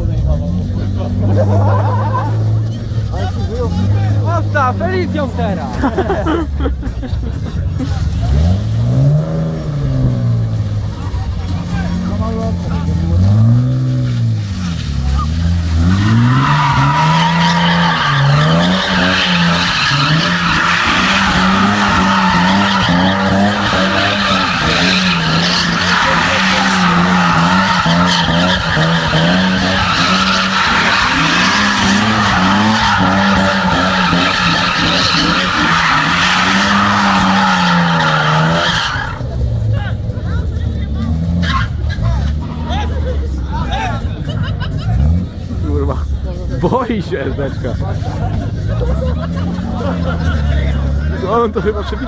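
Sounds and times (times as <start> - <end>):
car engine at high revs: 7.7 - 46.1
tyres squealing: 13.2 - 39.3.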